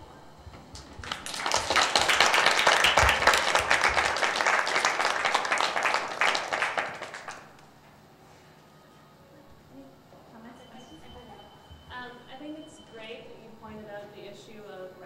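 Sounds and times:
audience applauding: 0.7 - 7.6.

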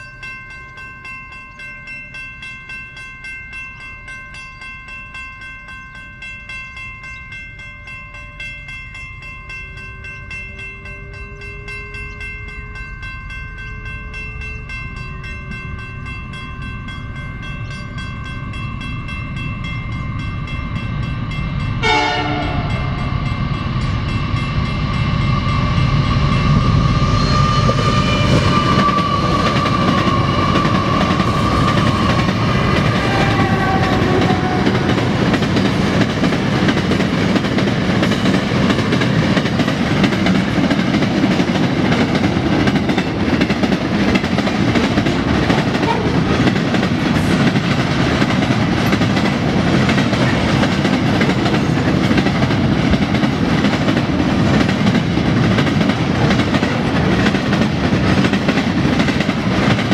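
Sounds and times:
locomotive whine: 0.0 - 59.9
train wheels clacking over rails: 19.0 - 59.9.

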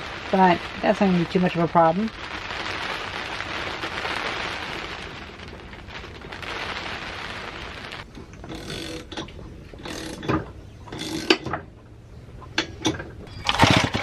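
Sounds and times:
steady rain falling: 0.0 - 9.1.

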